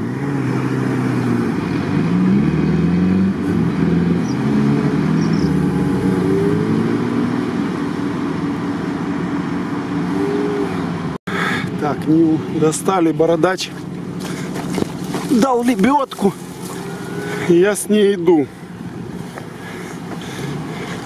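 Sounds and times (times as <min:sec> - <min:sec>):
off-road vehicle engine revving: 0:00.0 - 0:21.0.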